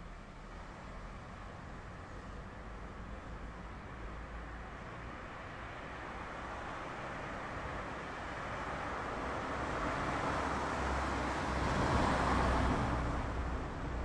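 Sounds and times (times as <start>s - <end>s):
car passing: 8.6s - 14.0s.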